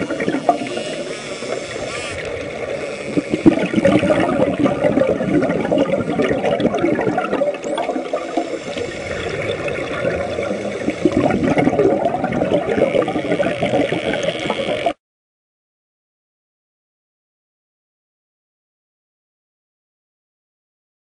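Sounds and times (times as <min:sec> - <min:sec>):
water splashing and churning: 0:00.0 - 0:15.0.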